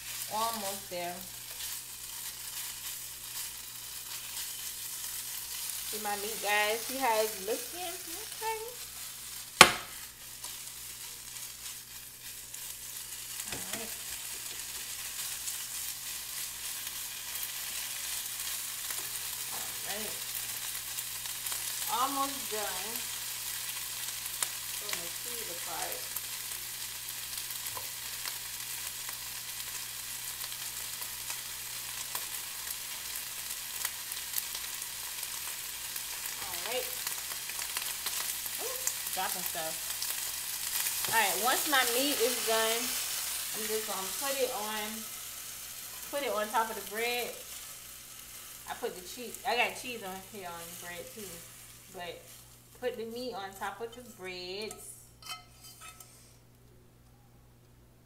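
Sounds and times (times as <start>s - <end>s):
meat sizzling in frying pan: 0.0s - 56.1s
fork stirring in pan: 54.0s - 56.3s.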